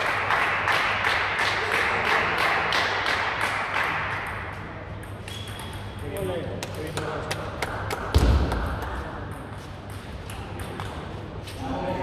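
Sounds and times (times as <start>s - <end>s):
crowd applauding: 0.0s - 4.1s.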